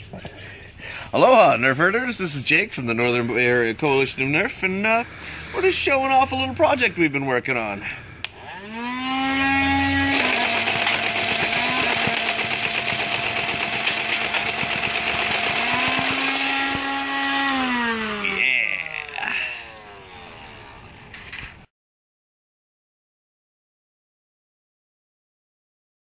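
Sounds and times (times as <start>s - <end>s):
toy blaster motors whining: 8.3s - 21.7s
toy blaster firing rattle: 10.1s - 20.5s.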